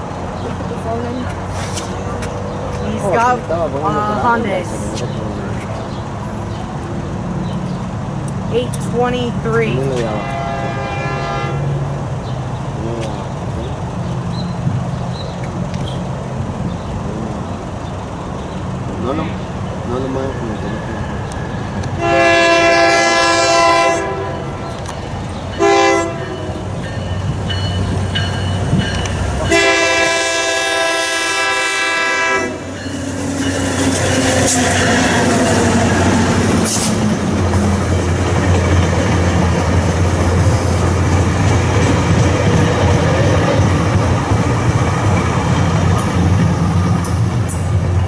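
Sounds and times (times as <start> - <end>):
train rumbling past: 0.0 - 48.0
train air horn blasts: 10.0 - 11.8, 22.0 - 24.7, 25.6 - 26.6, 29.5 - 32.7
wheels clattering on rails: 32.6 - 48.0.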